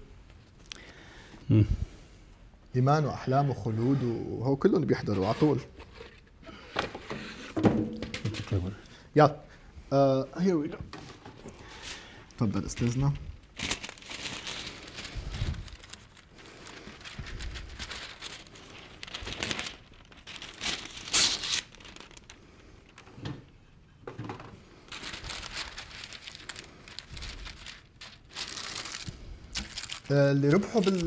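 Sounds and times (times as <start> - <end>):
wrapping material crinkling: 12.4 - 23.1, 24.8 - 31.0.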